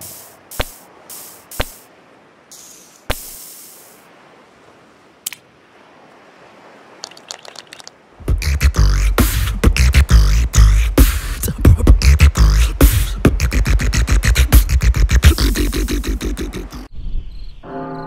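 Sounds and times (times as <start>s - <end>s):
beatbox music with heavy bass: 8.2s - 16.9s.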